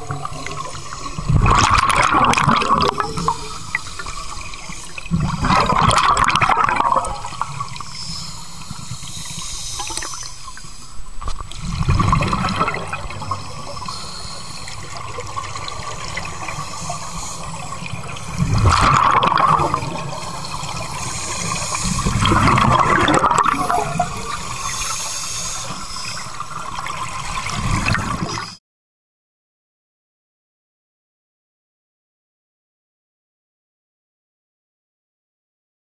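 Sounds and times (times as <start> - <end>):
diver exhaling bubbles: 0.0 - 4.4, 5.0 - 7.6, 11.6 - 24.8
steady underwater hiss: 0.0 - 28.6.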